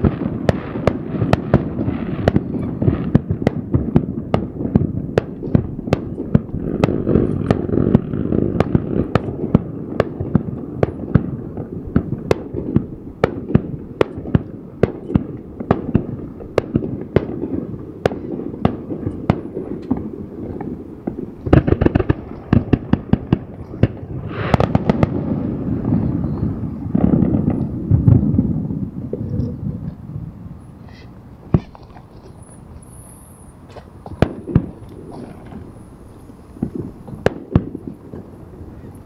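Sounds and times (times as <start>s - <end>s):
fireworks bangs: 0.0s - 39.0s
fireworks rumble and crackle: 0.0s - 39.0s.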